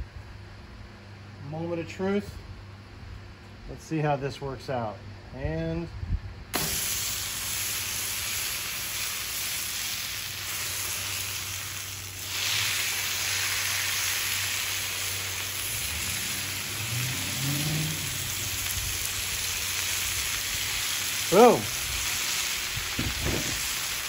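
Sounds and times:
meatloaf sizzling on a griddle: 6.6 - 24.0.

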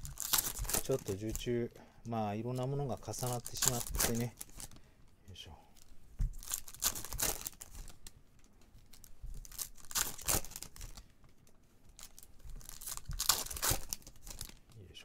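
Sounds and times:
foil wrapper tearing and crinkling: 0.0 - 1.5, 2.6 - 4.8, 5.8 - 8.1, 8.9 - 11.0, 11.9 - 14.8.

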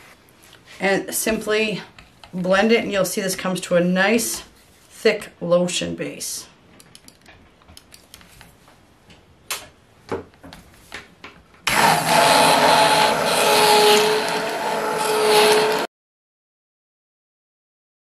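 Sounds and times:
stick blender motor whining: 11.7 - 15.9.

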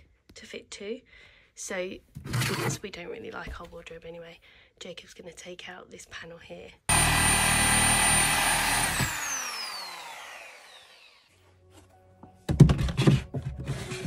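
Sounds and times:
reciprocating saw cutting wood: 6.9 - 11.3
saw motor winding down whine: 6.9 - 11.3
knocks and thumps: 12.4 - 14.0.

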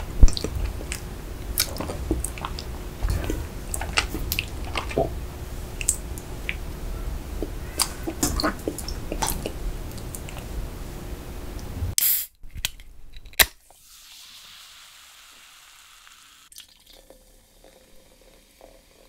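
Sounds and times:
mouth chewing with clicks and smacks: 0.1 - 6.6, 7.4 - 10.5.

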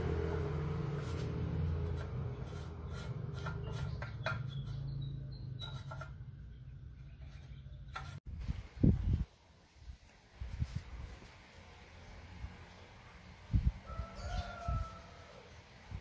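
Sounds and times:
metal on metal clicks and scrapes: 5.6 - 6.2.

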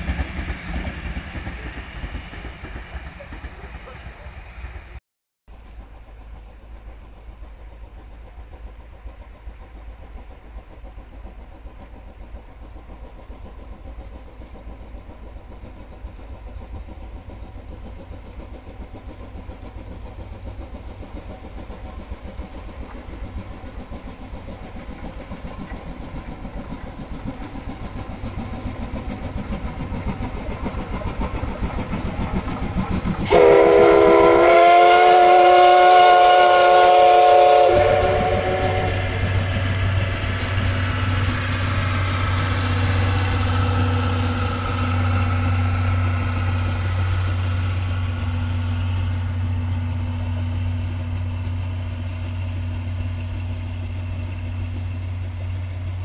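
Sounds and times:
steam locomotive running: 0.0 - 56.0
steam whistle: 33.2 - 39.4.

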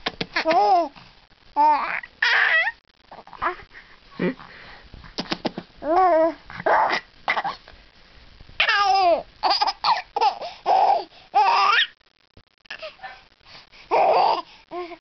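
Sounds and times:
baby laughing: 8.6 - 11.9.

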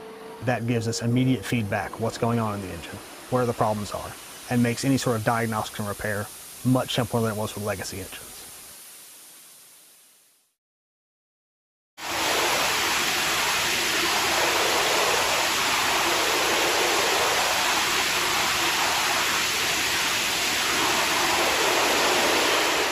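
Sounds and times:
loud jet engine roar: 0.0 - 5.1, 12.0 - 22.9.

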